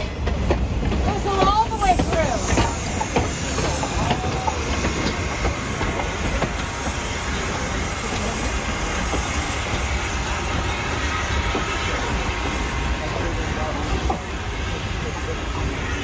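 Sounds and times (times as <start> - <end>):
wheels clicking over rails: 0.0 - 10.0
steam locomotive rolling: 0.0 - 16.0.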